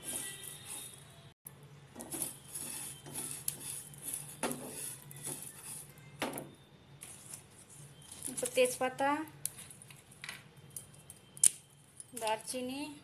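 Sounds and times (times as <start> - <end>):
spatula scraping a pan: 0.0 - 1.2, 2.0 - 6.2
seeds rattling in a pan: 2.0 - 5.9.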